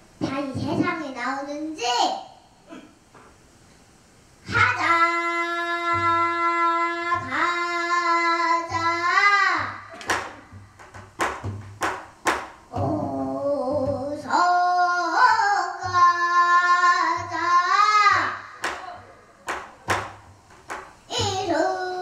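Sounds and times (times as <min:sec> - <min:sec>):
girl singing: 0:00.2 - 0:02.2, 0:04.4 - 0:10.6, 0:12.7 - 0:19.2, 0:21.1 - 0:22.0.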